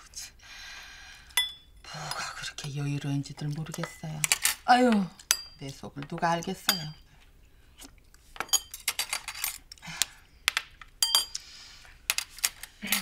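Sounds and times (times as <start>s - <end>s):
cutlery clinking against dishes: 8.4s - 9.7s, 11.0s - 11.4s.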